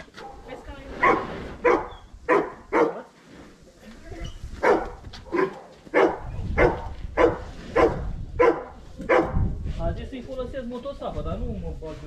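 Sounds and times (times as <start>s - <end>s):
dog barking: 0.2s - 3.0s, 4.6s - 9.4s.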